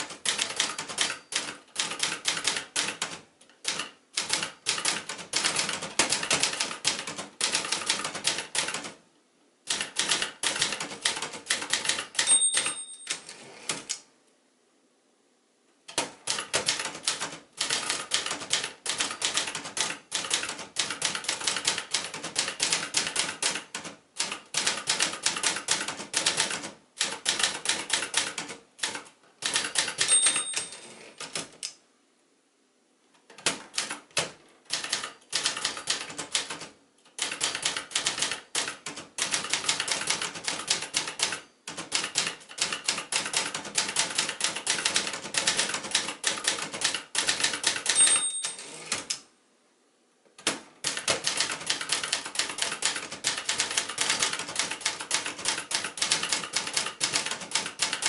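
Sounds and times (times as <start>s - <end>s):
typewriter carriage return: 0.0s - 9.0s, 9.7s - 14.0s, 15.9s - 31.6s, 33.3s - 49.2s, 50.4s - 58.0s
typewriter type-bar strikes: 0.0s - 9.0s, 9.7s - 14.0s, 15.9s - 31.7s, 33.3s - 49.2s, 50.4s - 58.0s
typewriter margin bell ding: 1.0s - 1.6s, 12.0s - 13.4s, 30.0s - 31.2s, 47.9s - 49.0s.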